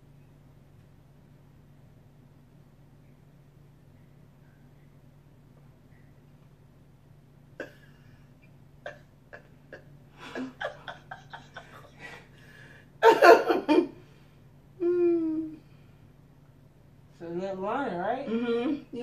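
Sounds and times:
woman laughing: 9.3 - 12.3, 13.0 - 14.0.

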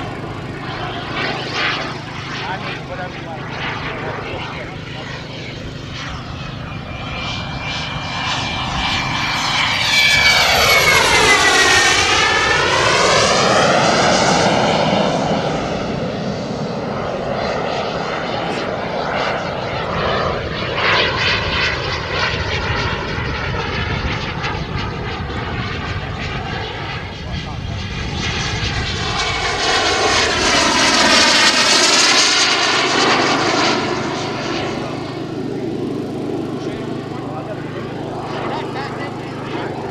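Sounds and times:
model jet engine whine: 0.0 - 39.9.

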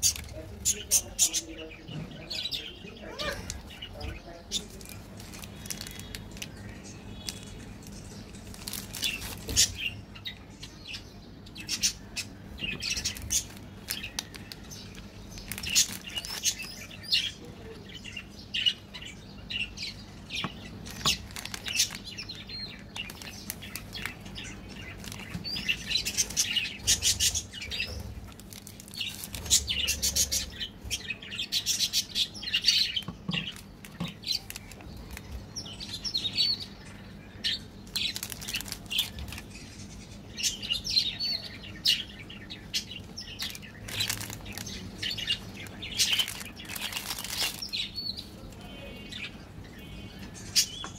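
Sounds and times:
wrappers crinkling: 3.1 - 9.9, 12.9 - 17.0, 20.7 - 30.4, 32.9 - 36.0, 37.8 - 39.6, 43.3 - 48.6.

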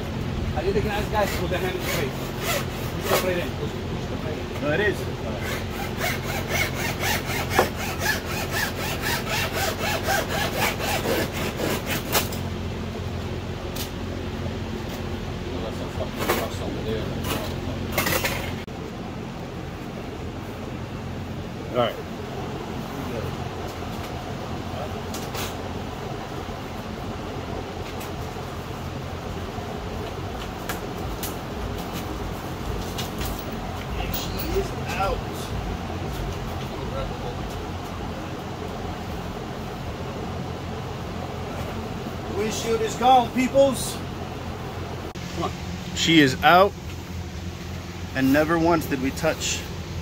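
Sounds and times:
low mechanical hum: 0.0 - 50.0
cut-out wire sawing through urethane: 1.2 - 3.3, 5.4 - 12.4.

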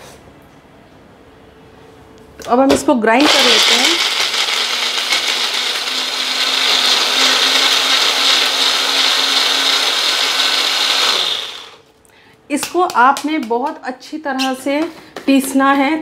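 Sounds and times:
mixer grinder running: 3.2 - 11.8.

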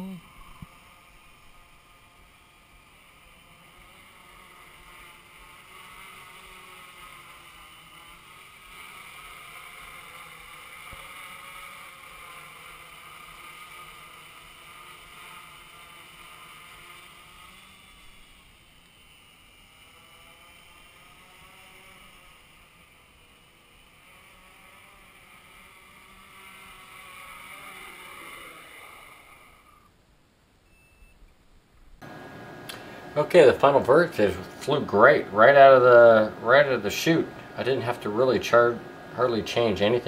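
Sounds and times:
drone motors buzzing whine: 0.0 - 40.0.

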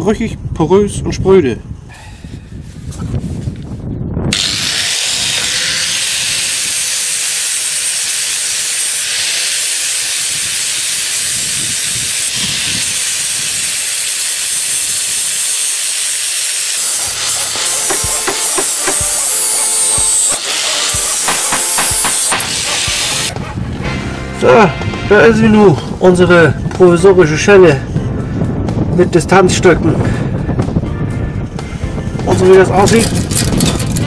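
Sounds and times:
angle grinder grinding metal: 4.3 - 23.4, 32.8 - 34.0.

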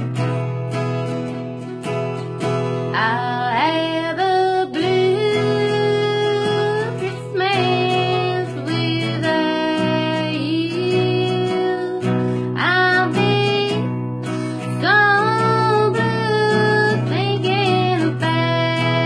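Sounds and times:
acoustic guitar strumming chords: 0.0 - 19.0
person singing: 3.0 - 19.0.

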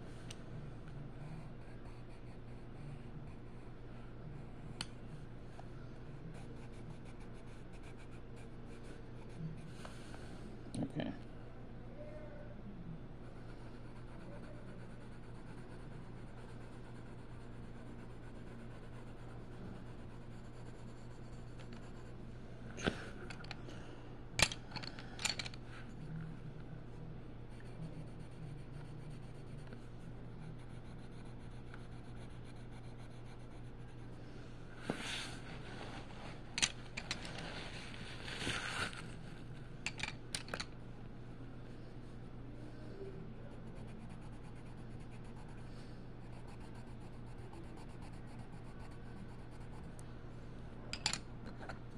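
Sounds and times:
steady low hum: 0.0 - 51.9
pencil scratching on paper: 1.2 - 3.7, 6.3 - 9.7, 13.2 - 22.2, 27.5 - 34.1, 43.5 - 49.9
pencils clicking and rattling: 24.4 - 25.6, 36.6 - 37.5, 39.9 - 40.7, 51.0 - 51.2.

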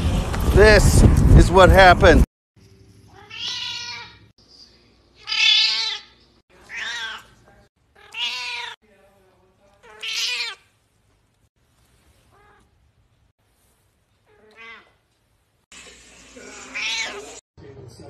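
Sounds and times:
cat meowing loudly: 3.2 - 4.2, 5.2 - 7.3, 8.0 - 8.8, 9.8 - 10.6, 14.3 - 15.0, 16.7 - 17.3.

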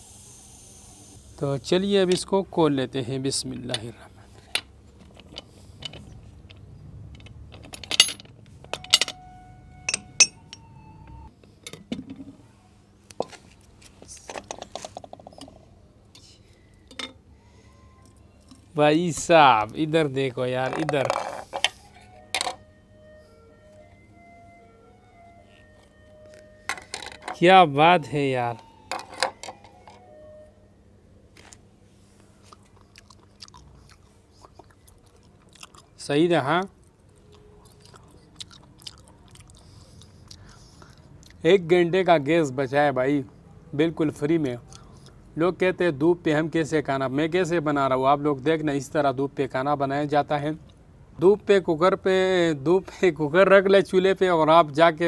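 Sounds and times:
ringing metal tone: 8.0 - 11.3
person chewing: 32.4 - 36.0, 36.8 - 41.4.

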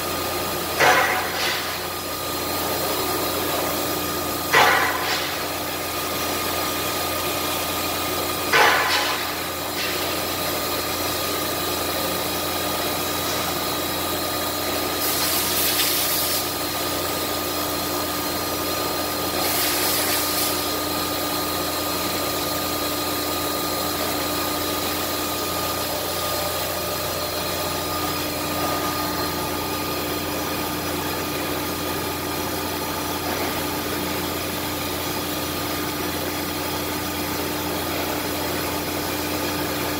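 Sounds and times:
sharp clack: 4.5 - 5.5.

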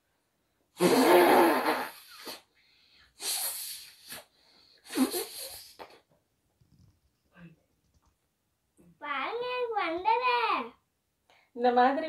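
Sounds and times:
child blowing out through nose: 0.8 - 2.5, 3.2 - 6.0.

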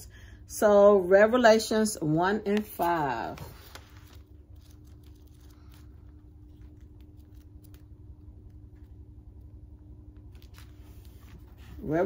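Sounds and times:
steady low hum: 0.0 - 12.0
thin pages rustling: 2.5 - 9.0, 10.2 - 12.0.

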